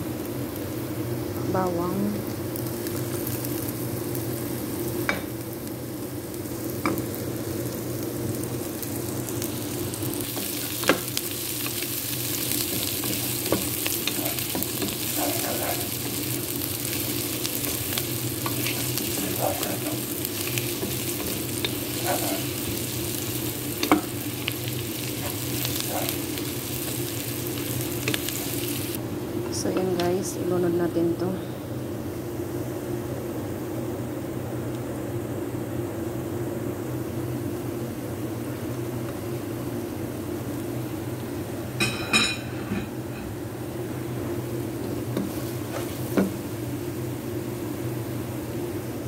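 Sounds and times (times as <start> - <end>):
onions sizzling in hot oil: 0.0 - 31.3, 38.5 - 49.0
wooden spatula stirring and scraping: 10.3 - 22.9.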